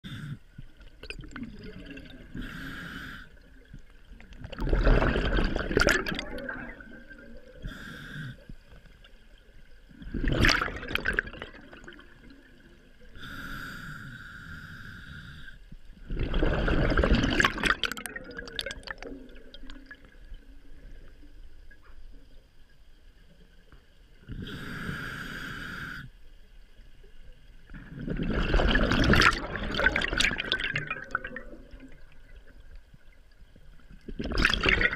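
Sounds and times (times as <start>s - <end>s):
exhaled bubbles underwater: 0.0s - 13.5s, 15.9s - 22.4s, 27.1s - 34.9s
regulator hissing inhale: 2.4s - 3.4s, 7.6s - 8.6s, 13.2s - 15.7s, 24.4s - 26.2s.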